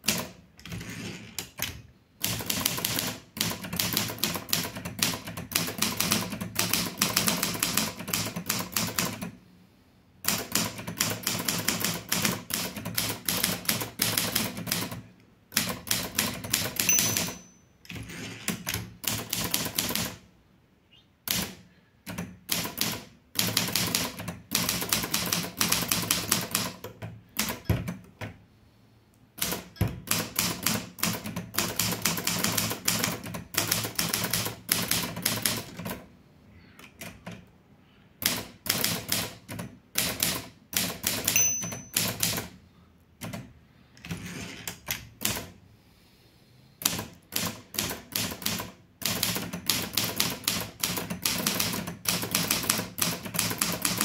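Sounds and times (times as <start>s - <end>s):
typewriter keystrokes clacking: 1.4s - 9.3s, 38.3s - 42.5s, 46.9s - 54.0s
typewriter bell ding: 16.8s - 17.8s, 41.3s - 42.2s.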